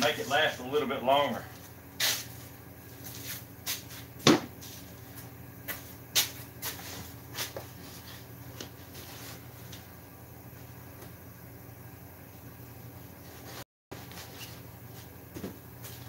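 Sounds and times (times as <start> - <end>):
low shop hum: 0.0 - 16.0
knocks and clatter on workbench: 4.2 - 4.5.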